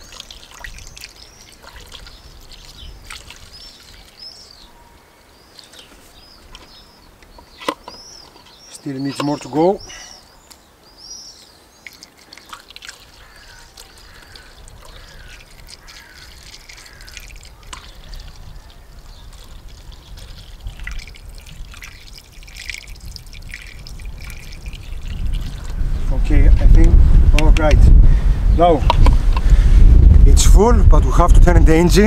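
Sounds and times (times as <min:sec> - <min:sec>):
liquid trickling through funnel: 0:00.0 - 0:04.7, 0:11.7 - 0:26.2.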